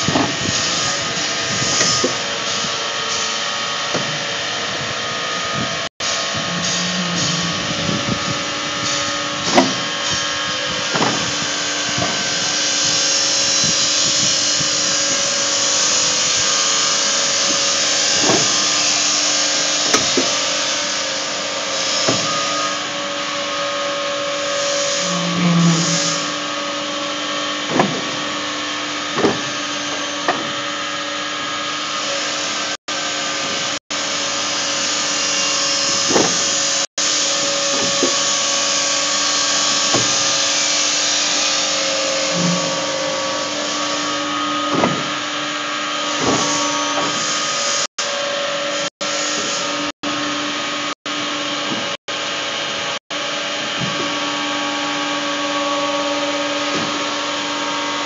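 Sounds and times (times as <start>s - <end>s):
bending machine humming: 0.0s - 47.9s
machine knocks and clanks: 6.8s - 10.2s, 10.8s - 12.4s, 27.6s - 28.3s, 29.1s - 30.6s, 35.9s - 36.7s, 42.1s - 45.2s.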